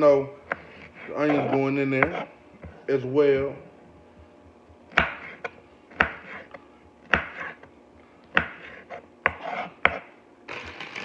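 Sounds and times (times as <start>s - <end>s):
knife chopping on cutting board: 0.4s - 2.8s, 4.9s - 7.7s, 8.3s - 10.1s.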